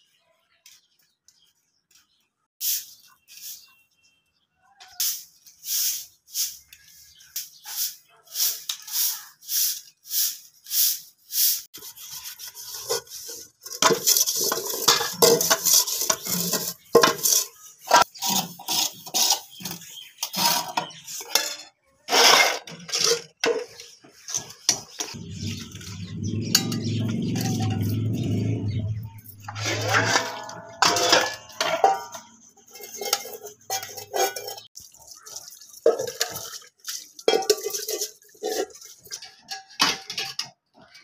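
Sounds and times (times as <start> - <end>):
broom sweeping concrete floor: 2.6 - 3.9, 4.8 - 21.4, 25.1 - 34.7
dishes being scrubbed at a tap: 5.0 - 40.6
pots and plates clattering: 11.8 - 40.8.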